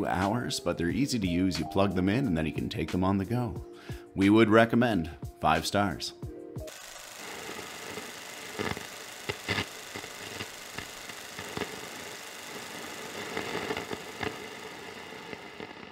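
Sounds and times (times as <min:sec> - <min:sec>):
radio static hiss with crackles: 0:07.2 - 0:15.9.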